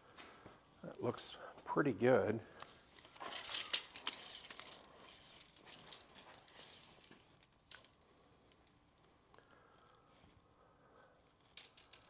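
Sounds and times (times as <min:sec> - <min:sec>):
tape measure blade rasping and clicking: 0:03.0 - 0:07.9.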